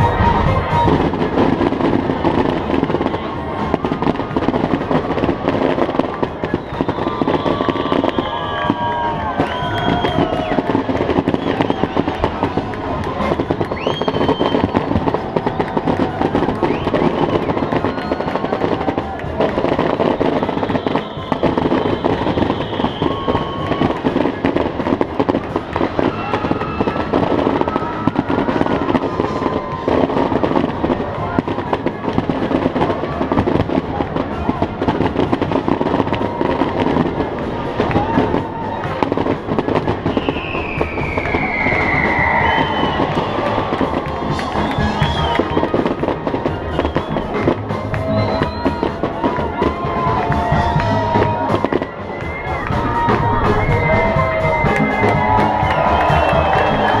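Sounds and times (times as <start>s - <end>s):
fireworks crackling and banging: 0.0s - 57.0s.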